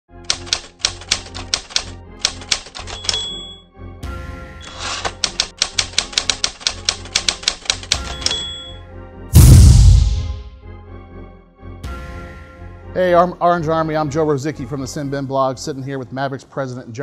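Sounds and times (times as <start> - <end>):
typewriter keystrokes: 0.3 - 3.6, 4.6 - 8.6
typewriter bell ding: 2.6 - 3.6, 7.8 - 8.8.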